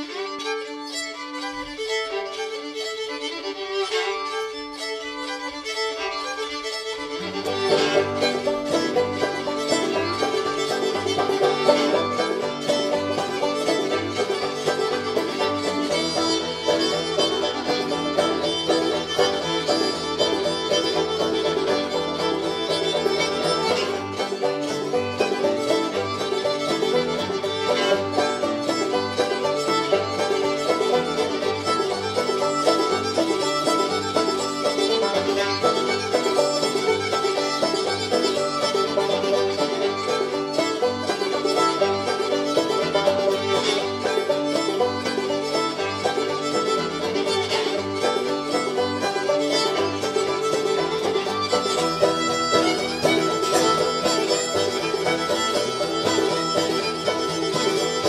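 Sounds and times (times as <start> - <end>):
banjo: 0.0 - 58.0
fiddle: 0.0 - 58.0.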